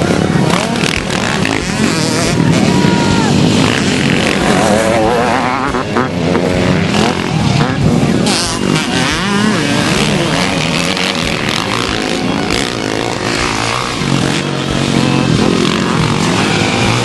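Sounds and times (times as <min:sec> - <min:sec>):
dirt bike engines revving: 0:00.0 - 0:17.0.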